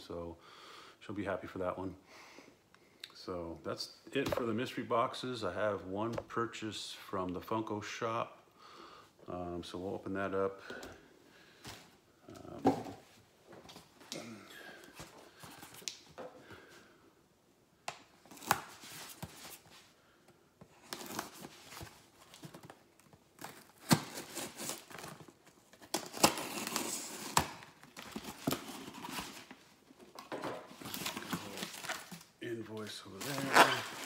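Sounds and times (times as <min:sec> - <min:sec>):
packing material tearing and crinkling: 0:23.4 - 0:29.5, 0:30.8 - 0:32.3, 0:33.1 - 0:34.0.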